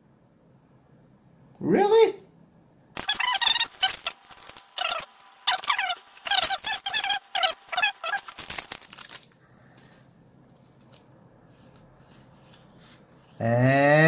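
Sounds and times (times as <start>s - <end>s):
foil wrapper crinkling: 3.0s - 9.9s
soft handling of cards: 8.0s - 13.4s.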